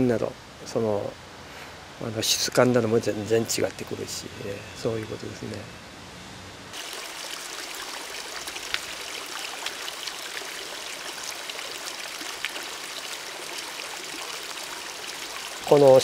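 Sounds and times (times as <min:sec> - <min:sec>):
small stream running: 0:06.7 - 0:16.0
water splashing: 0:06.8 - 0:16.0.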